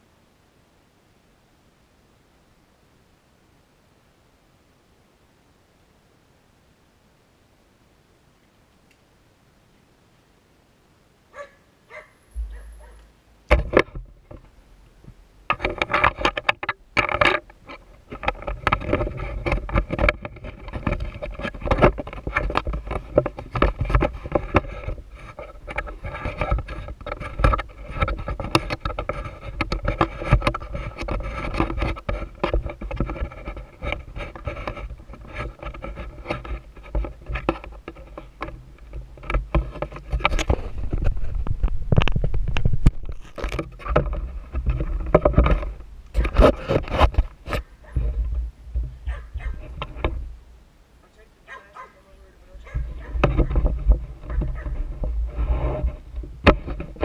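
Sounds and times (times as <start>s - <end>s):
knocks and clatter: 12.3s - 50.3s, 52.6s - 57.0s.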